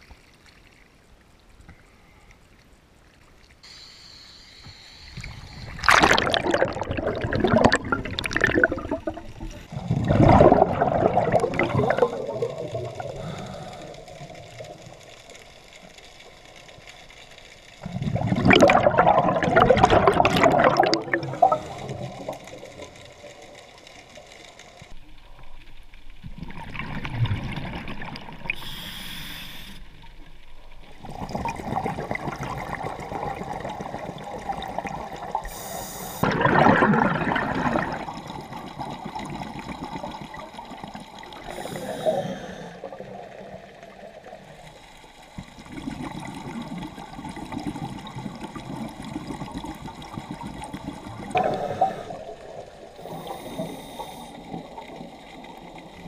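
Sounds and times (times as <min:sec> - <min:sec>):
diver inhaling through regulator: 0:03.6 - 0:05.9, 0:13.1 - 0:14.1, 0:28.5 - 0:29.9, 0:35.4 - 0:36.3, 0:41.4 - 0:43.0, 0:51.3 - 0:52.4, 0:53.0 - 0:54.6
exhaled bubbles gurgling: 0:05.1 - 0:15.5, 0:17.8 - 0:23.8, 0:25.4 - 0:28.9, 0:29.9 - 0:56.0.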